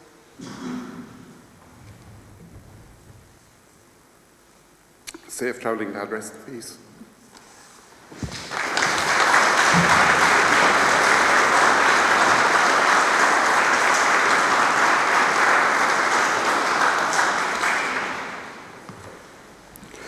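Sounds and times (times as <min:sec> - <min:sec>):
congregation applauding: 0:08.2 - 0:18.9.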